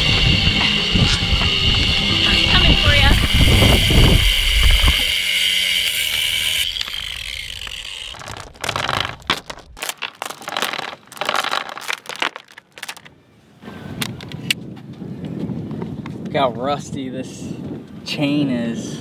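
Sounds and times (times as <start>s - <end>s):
high whine with hiss: 0.0s - 6.3s
anchor chain clanking: 6.6s - 13.1s.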